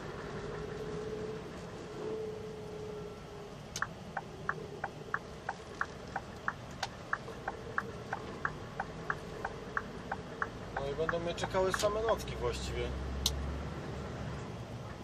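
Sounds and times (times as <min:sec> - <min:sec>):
lorry engine running: 0:00.0 - 0:15.0
turn signal ticking: 0:03.7 - 0:13.4.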